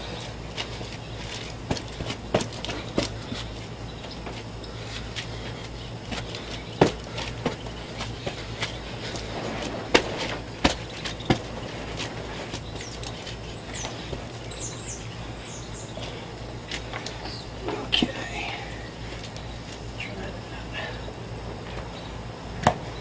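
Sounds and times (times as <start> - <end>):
bird chirping: 12.4 - 17.6.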